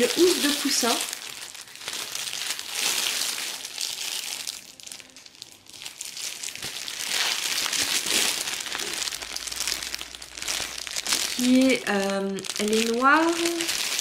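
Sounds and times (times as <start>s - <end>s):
plastic wrapping crinkling: 0.0s - 14.0s.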